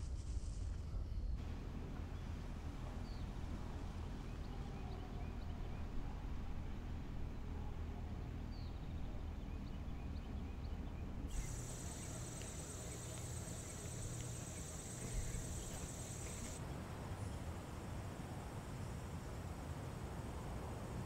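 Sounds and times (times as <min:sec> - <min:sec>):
faint chirps: 0:11.3 - 0:16.6
high-pitched insect trill: 0:11.3 - 0:16.6.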